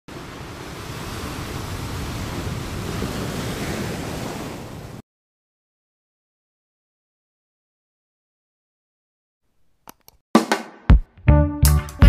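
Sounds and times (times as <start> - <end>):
ocean waves washing on shore: 0.1 - 5.0.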